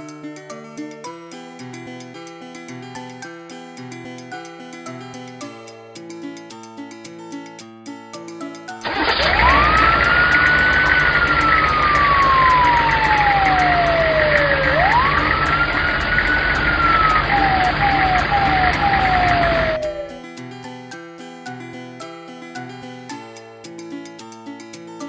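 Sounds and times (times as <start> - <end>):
engine rumble: 8.9 - 20.2
fire engine siren wailing: 8.9 - 20.2.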